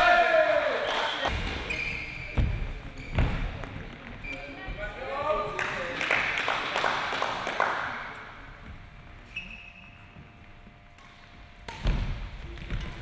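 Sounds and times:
hand clapping: 5.6 - 8.0.

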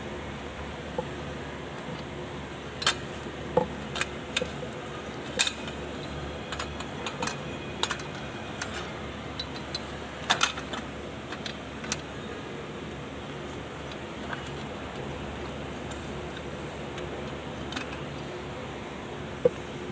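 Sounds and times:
steady background hum: 0.0 - 19.9
light clicks and knocks of metal: 2.8 - 12.2, 13.3 - 18.4.

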